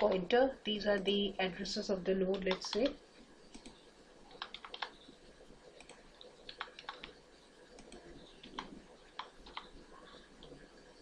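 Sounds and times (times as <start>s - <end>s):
faint keystrokes on keyboard: 2.3s - 5.2s, 5.8s - 10.6s.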